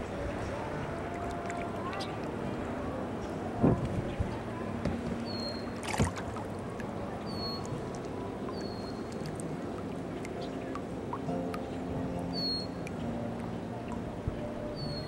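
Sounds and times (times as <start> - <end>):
water lapping against boat hull: 3.3 - 15.0.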